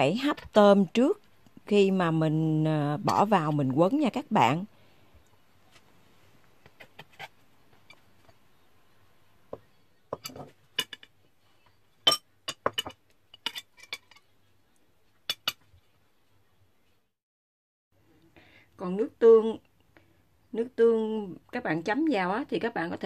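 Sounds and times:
spatula clinking on ceramic plate: 12.1 - 14.3.

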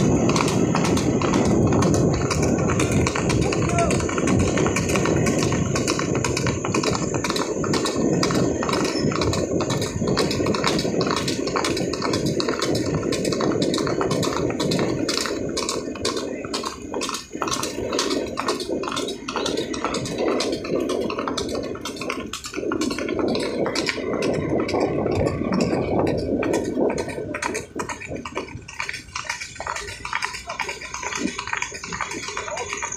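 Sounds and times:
horse hooves clip-clopping on road: 0.0 - 32.9
wind rumble on microphone: 0.0 - 32.9.

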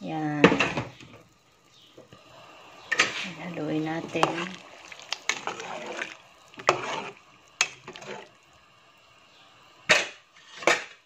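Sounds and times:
spoon stirring broth in pot: 2.9 - 8.4.

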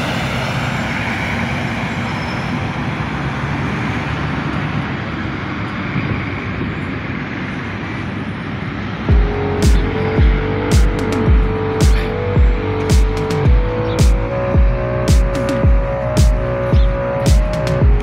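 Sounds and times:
road and traffic noise: 0.0 - 18.0
music with heavy bass beat: 9.1 - 18.0.

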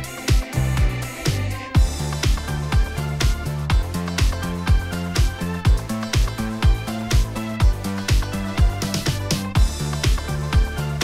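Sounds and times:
bass line: 0.0 - 11.0
electronic dance music: 0.0 - 11.0
kick drum: 0.2 - 11.0.

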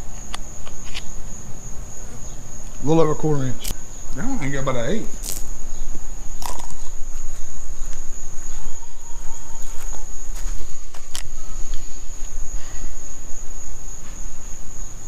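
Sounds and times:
insects trilling: 0.0 - 15.0
sharp clicks: 3.6 - 3.8.

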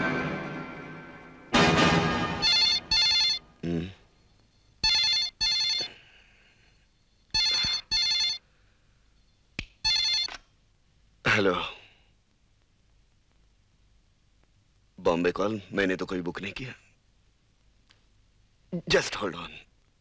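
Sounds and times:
brief loud sound: 0.0 - 3.0
landline telephone ringing: 2.4 - 3.5, 4.8 - 6.1, 7.3 - 8.5, 9.9 - 10.4.

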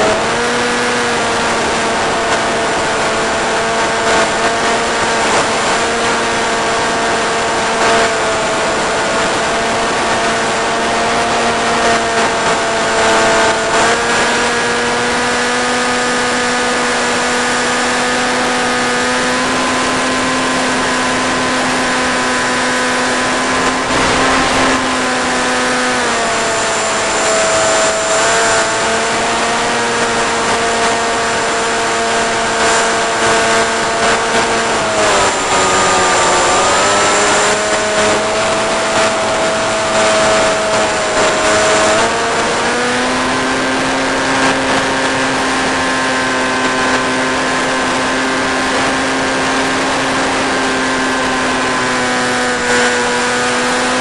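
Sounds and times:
electric motor propeller whine: 0.0 - 54.0
air rushing: 23.1 - 27.8.

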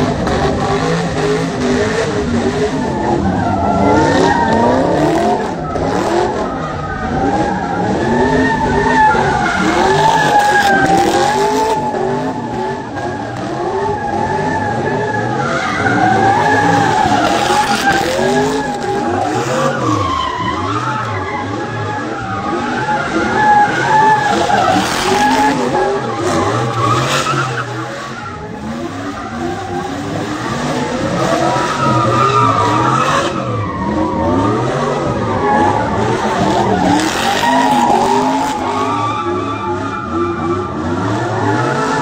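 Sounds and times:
truck engine revving: 0.0 - 42.0
tyres squealing and skidding: 0.0 - 42.0.

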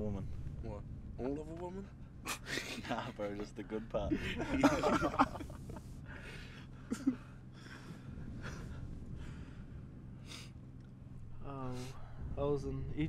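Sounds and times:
men laughing: 2.2 - 9.4.

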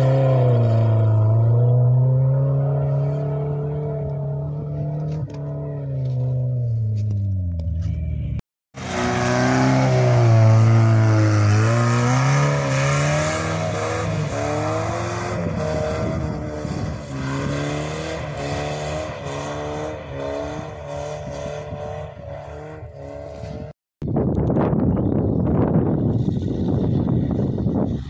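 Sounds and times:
car engine revving hard: 8.8 - 23.6.

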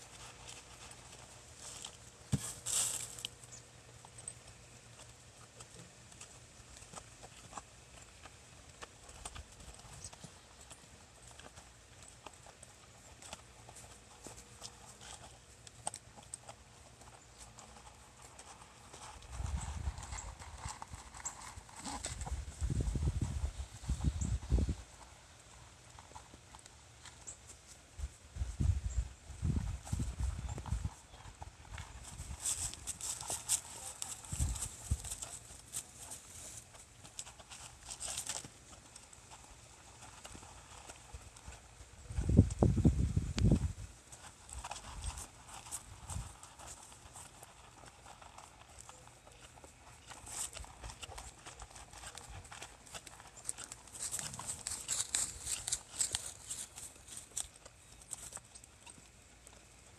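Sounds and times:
horse hooves clip-clopping: 29.5 - 59.7.

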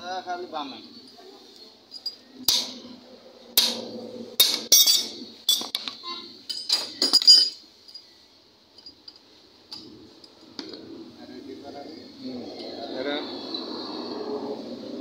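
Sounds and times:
wrenches clinking on metal: 4.7 - 8.0.

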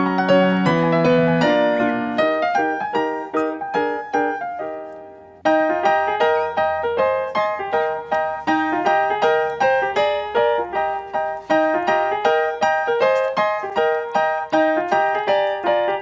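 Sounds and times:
light piano melody: 0.0 - 16.0.

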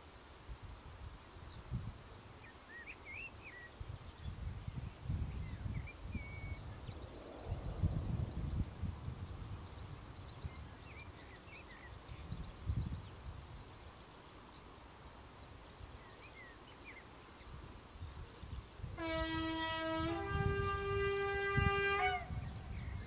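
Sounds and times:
small birds chirping: 1.4 - 19.0
wind buffeting microphone: 3.5 - 13.8, 17.4 - 23.0.

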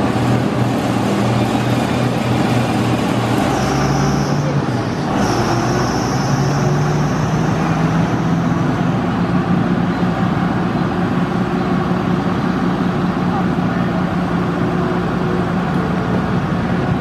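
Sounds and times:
small engine running: 0.0 - 9.5.

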